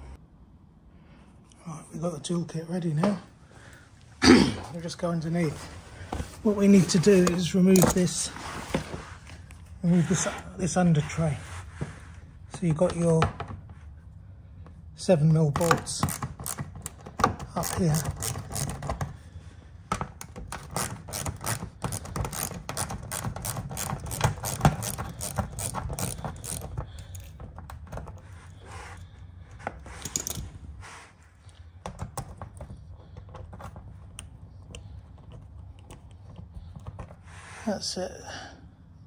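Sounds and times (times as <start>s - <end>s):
hand ratchet clicking: 15.6s - 19.0s, 20.2s - 27.7s.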